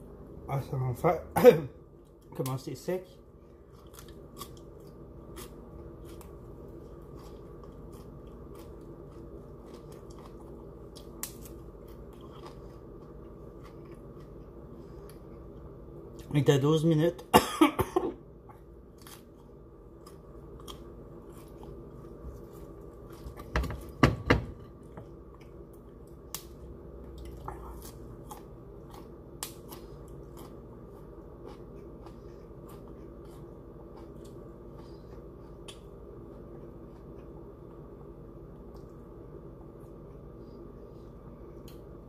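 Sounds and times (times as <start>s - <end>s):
person chewing broccoli: 3.3s - 16.3s, 18.5s - 24.0s, 24.7s - 42.0s
low hum: 17.2s - 42.0s.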